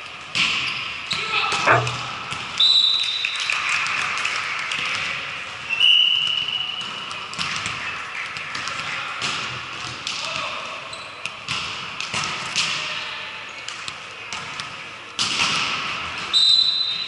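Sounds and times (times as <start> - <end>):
volleyball contacts: 1.6 - 2.6.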